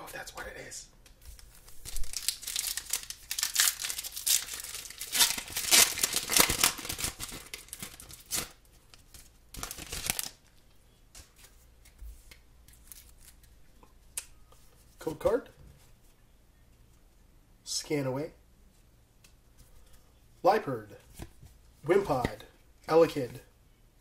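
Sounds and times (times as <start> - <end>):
foil wrapper tearing and crinkling: 1.3 - 10.4.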